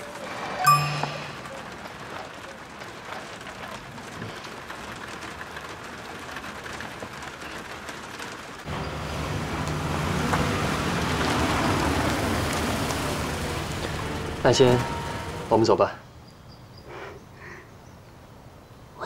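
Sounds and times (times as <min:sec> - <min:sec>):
rain pattering on car roof: 0:00.0 - 0:00.6, 0:01.4 - 0:15.7
car engine and tyres rumbling: 0:01.3 - 0:15.7.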